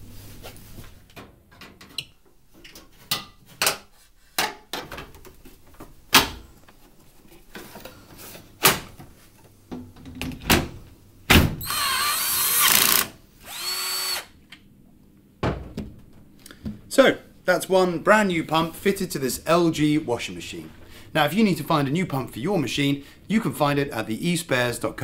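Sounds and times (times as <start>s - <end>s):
cordless drill driving screws: 11.6s - 14.3s.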